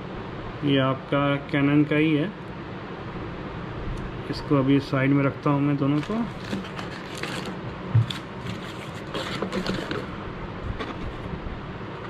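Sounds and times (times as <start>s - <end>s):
cardboard knocks and rustling: 6.4s - 10.1s.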